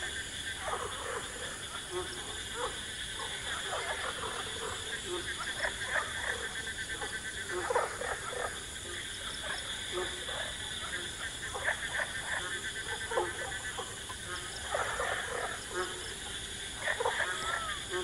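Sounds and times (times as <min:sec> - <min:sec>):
frogs croaking: 0:00.0 - 0:18.0.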